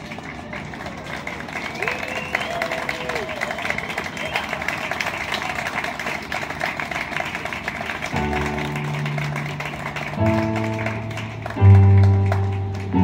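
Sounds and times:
crowd applause: 0:00.0 - 0:13.0
piano playing slow chords: 0:08.0 - 0:13.0.

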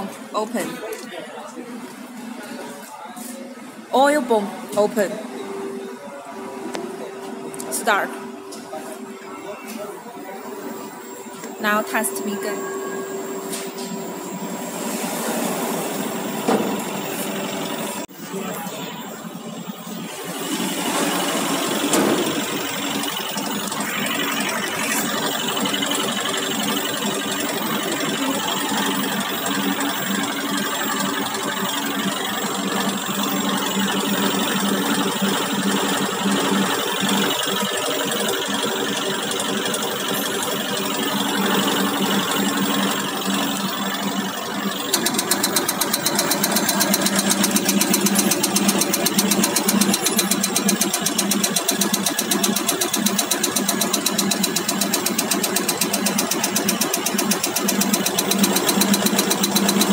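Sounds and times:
oil pump running steadily: 0:13.2 - 0:59.9
fast even ticking: 0:44.7 - 0:59.9.

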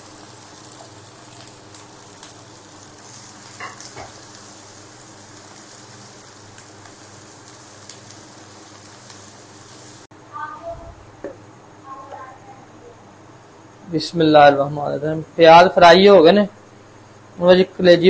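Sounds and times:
onions sizzling in oil: 0:00.0 - 0:10.1.

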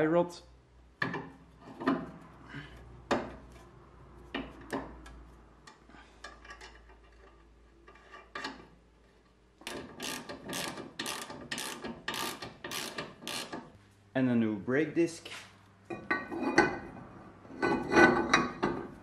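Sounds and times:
socket ratchet clicking: 0:09.6 - 0:13.7.

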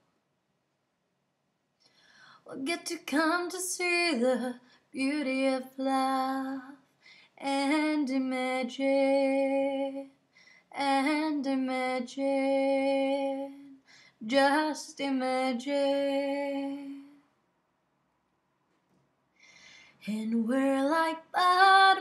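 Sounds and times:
woman singing unaccompanied: 0:02.5 - 0:06.8, 0:07.4 - 0:17.2, 0:20.0 - 0:22.0.

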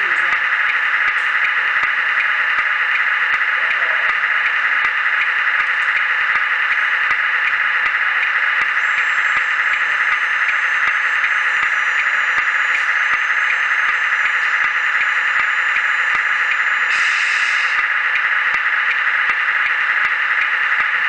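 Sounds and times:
faint high whining tones: 0:06.7 - 0:17.8.

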